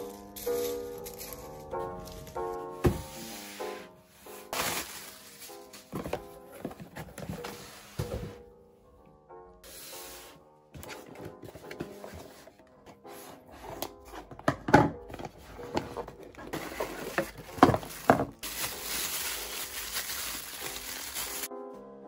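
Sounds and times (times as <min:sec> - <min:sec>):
cardboard box knocks and scrapes: 0:02.8 - 0:03.4
plastic bag crinkling: 0:04.5 - 0:06.4, 0:16.4 - 0:21.5.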